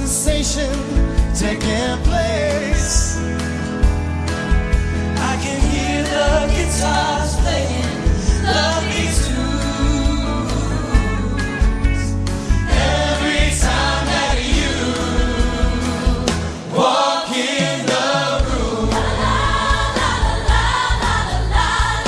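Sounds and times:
bass and drums: 0:00.0 - 0:16.8, 0:17.4 - 0:22.0
group of singers singing: 0:05.2 - 0:22.0.

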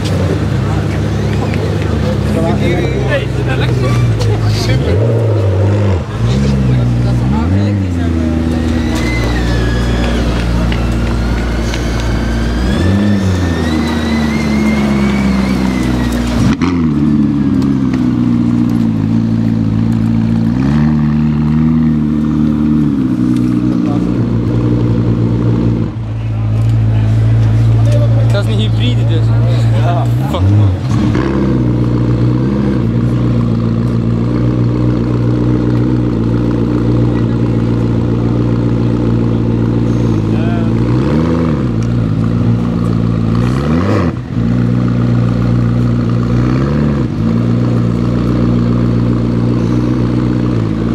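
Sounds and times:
car engine at low revs: 0:00.0 - 0:50.9
high whine: 0:07.6 - 0:29.8.

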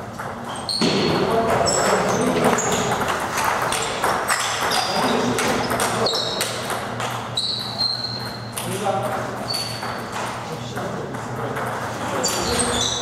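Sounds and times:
table tennis balls clicking: 0:00.0 - 0:13.0
high-pitched squeaks: 0:04.7 - 0:06.7, 0:07.3 - 0:08.6, 0:09.4 - 0:10.2, 0:12.1 - 0:13.0.

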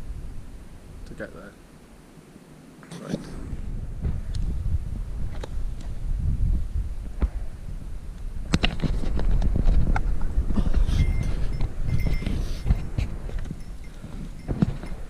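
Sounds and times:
low microphone rumble: 0:03.3 - 0:15.0.

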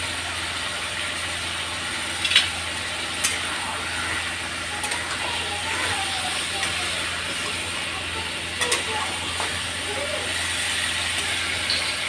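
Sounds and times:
chicken sizzling in a pan: 0:00.0 - 0:12.0.

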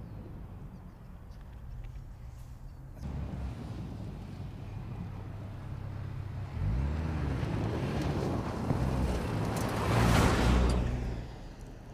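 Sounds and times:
tyres on loose dirt: 0:01.0 - 0:11.9
car engine revving: 0:03.0 - 0:11.3.

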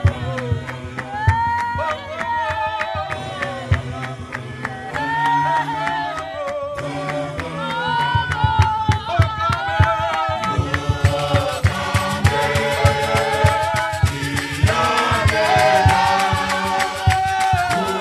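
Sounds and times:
choir singing a hymn: 0:00.0 - 0:18.0
hand claps: 0:00.0 - 0:18.0
bass drum beating: 0:07.9 - 0:18.0.

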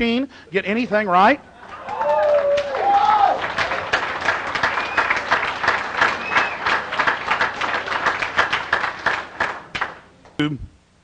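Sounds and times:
audience applauding: 0:01.6 - 0:10.0.

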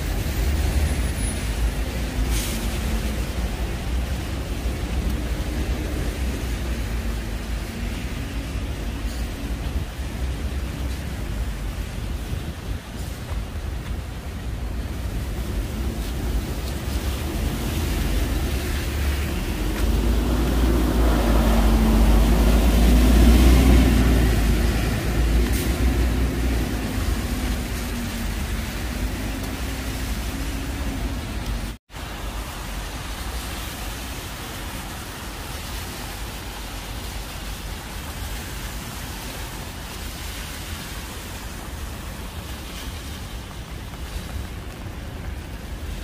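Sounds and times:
rain hiss: 0:00.0 - 0:46.0
wet-road traffic: 0:00.0 - 0:46.0
passing vehicle engine: 0:16.9 - 0:31.6.

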